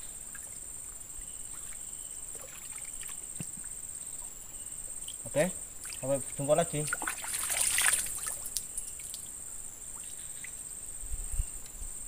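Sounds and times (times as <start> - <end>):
water splashing and sloshing: 1.2 - 4.4, 5.0 - 10.6.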